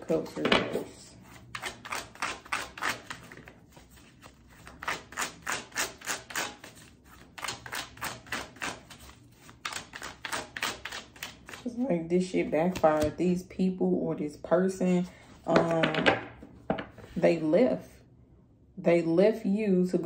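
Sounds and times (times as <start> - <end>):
cards being shuffled: 0.7 - 11.8, 12.6 - 13.2.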